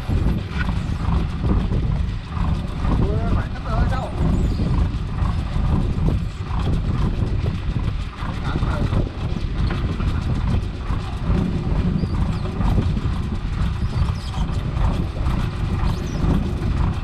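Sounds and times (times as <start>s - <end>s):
boat engine rumbling and clattering: 0.0s - 17.0s.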